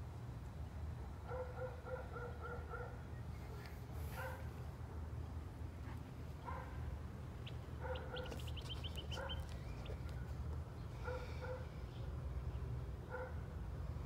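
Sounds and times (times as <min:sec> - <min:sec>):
dog barking: 0:01.3 - 0:03.0, 0:04.1 - 0:04.5, 0:06.4 - 0:06.8, 0:07.8 - 0:08.4, 0:09.1 - 0:09.5, 0:11.0 - 0:11.7, 0:13.1 - 0:13.4.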